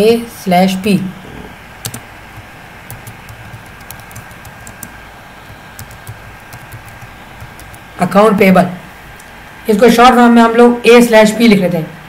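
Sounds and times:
faint steady hiss: 0.0s - 12.0s
typing on computer keyboard: 1.8s - 7.9s.

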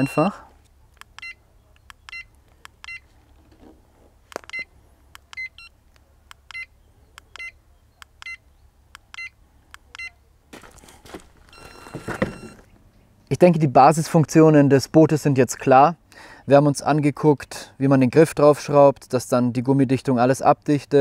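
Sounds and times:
short electronic beeps: 0.0s - 0.4s, 11.5s - 12.7s
rustling: 10.5s - 12.7s.

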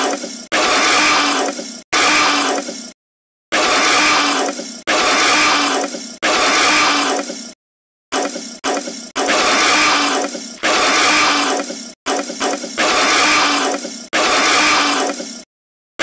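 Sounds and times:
cartoon dinosaur hissing roar: 3.6s - 7.6s, 8.2s - 15.4s.

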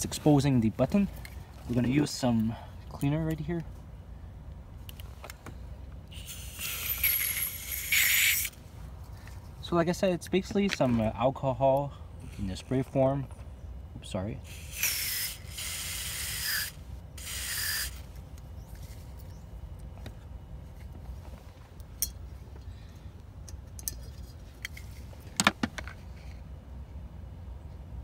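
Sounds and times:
aerosol spray hissing: 6.2s - 8.5s, 14.5s - 18.0s.

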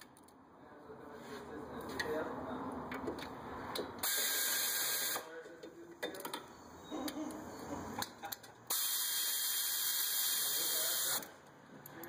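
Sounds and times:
pneumatic ratchet hissing: 4.0s - 5.2s, 8.7s - 11.2s.

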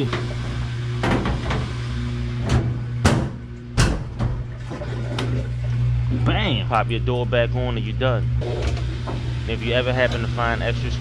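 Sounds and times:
steady machine hum: 0.0s - 11.0s
washer filling with water: 0.0s - 11.0s
washer lid knocks and clunks: 1.0s - 1.7s, 2.4s - 4.6s.

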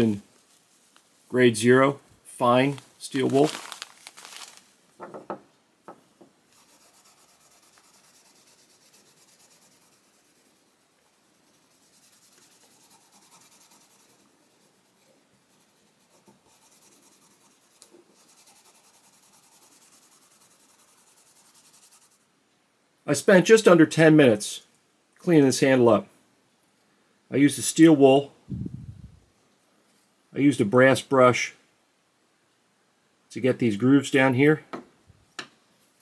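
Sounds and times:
light tool knocks: 5.0s - 6.3s
steel wool rubbing plastic: 6.5s - 22.2s.

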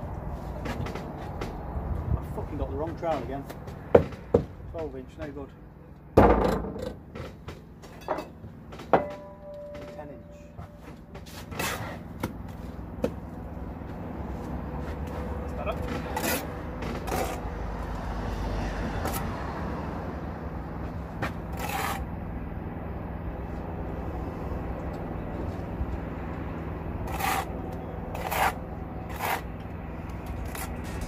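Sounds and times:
trowel scraping mortar: 11.3s - 12.1s, 15.8s - 17.5s, 21.2s - 22.1s, 27.0s - 31.0s.

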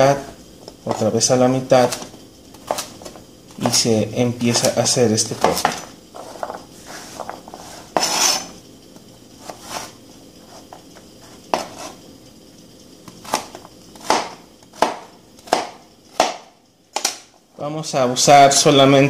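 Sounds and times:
knife chopping carrot on board: 13.2s - 17.1s.

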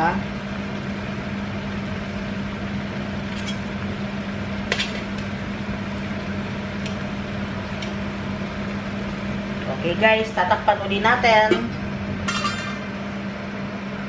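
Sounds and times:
steady hum: 0.0s - 14.0s
chicken simmering: 0.2s - 9.9s.

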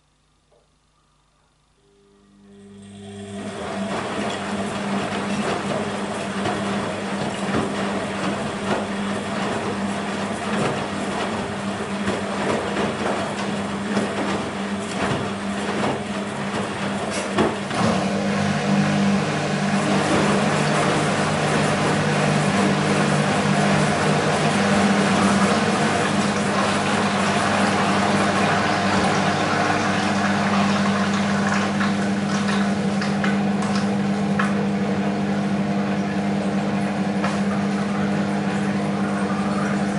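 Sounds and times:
washing machine drum motor hum: 1.6s - 39.9s
water sloshing: 19.8s - 34.1s.

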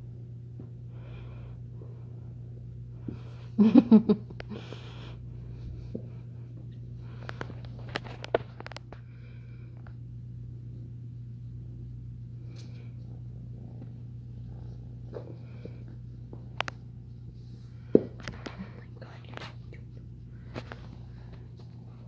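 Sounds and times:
kitten purring: 12.8s - 17.0s.

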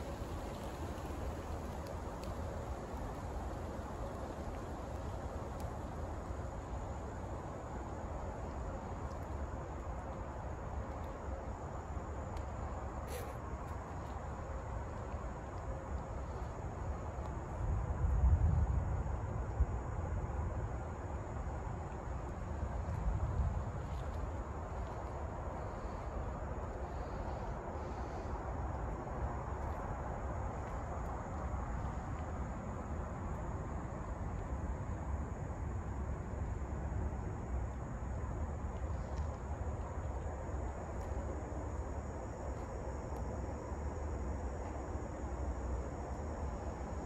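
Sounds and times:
faint high hiss: 0.0s - 17.3s
low rumble and hiss: 0.0s - 47.0s
insect trill: 19.9s - 47.0s.

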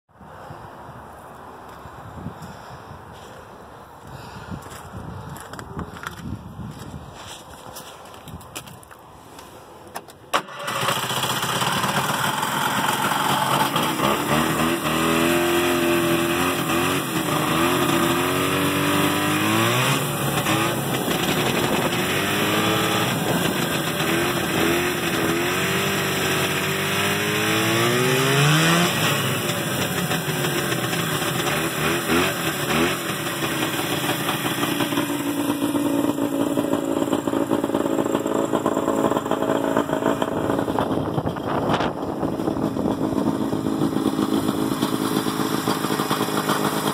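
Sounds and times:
snowmobile engine revving: 10.4s - 46.9s.

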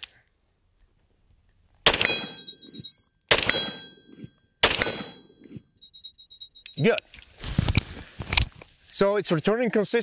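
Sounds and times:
rifle shots: 1.8s - 2.5s, 3.3s - 3.9s, 4.6s - 5.2s
steel target ringing: 2.0s - 5.4s.

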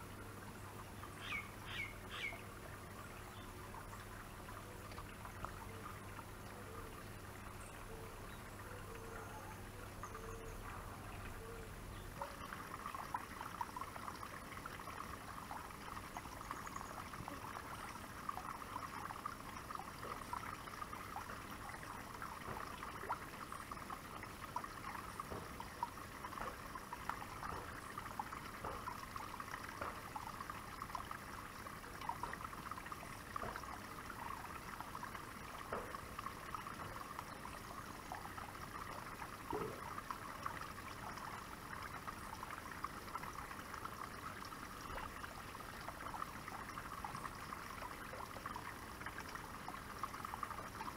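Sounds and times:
small waterfall splashing into pond: 0.0s - 9.0s, 9.6s - 50.9s.

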